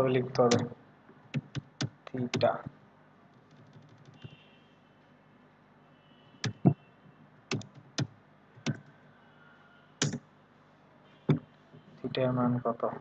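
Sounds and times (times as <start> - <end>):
keyboard keystrokes: 0.4 - 0.7, 7.5 - 8.9.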